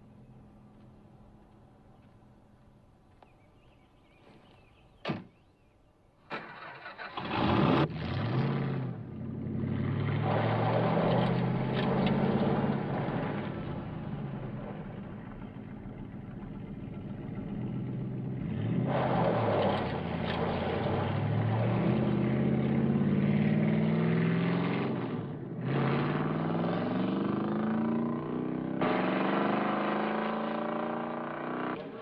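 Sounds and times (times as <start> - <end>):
car engine accelerating: 6.6 - 32.0.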